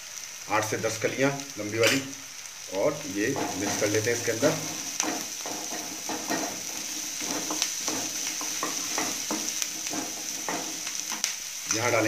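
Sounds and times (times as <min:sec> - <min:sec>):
vegetables sizzling in oil: 0:00.0 - 0:12.0
spatula scraping pan: 0:03.2 - 0:11.3.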